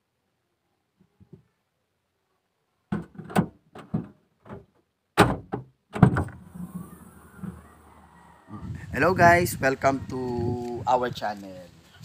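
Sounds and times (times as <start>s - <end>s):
tailgate clunks and knocks: 2.9s - 7.6s.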